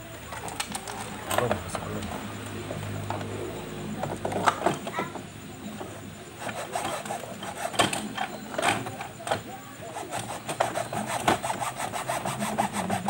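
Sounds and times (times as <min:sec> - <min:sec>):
metal rod scraping plastic hull: 0:06.4 - 0:13.0.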